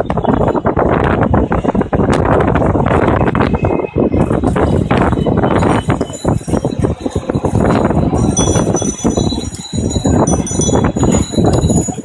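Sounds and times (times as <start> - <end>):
busy street traffic: 0.0 - 12.0
bells ringing: 5.6 - 12.0.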